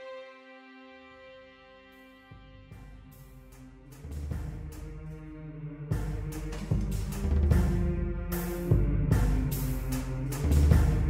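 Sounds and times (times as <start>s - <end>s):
deep drum strikes: 5.9s - 11.0s.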